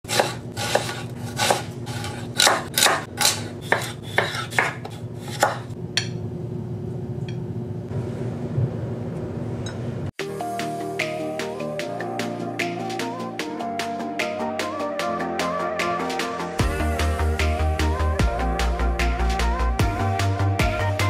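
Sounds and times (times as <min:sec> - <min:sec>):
knife chopping on wooden board: 0:00.1 - 0:05.8
music: 0:10.2 - 0:21.0.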